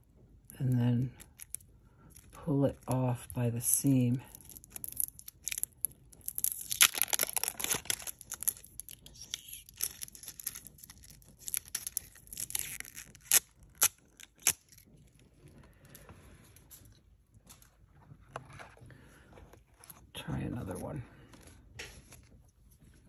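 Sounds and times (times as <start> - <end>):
plastic wrap crinkling: 1.0 - 15.6.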